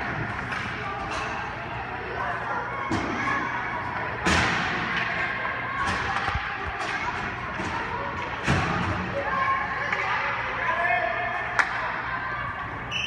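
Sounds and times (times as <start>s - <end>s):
hockey sticks and pucks clacking: 0.0s - 1.6s, 4.2s - 10.6s, 11.5s - 12.0s
murmur of distant voices: 0.0s - 13.0s.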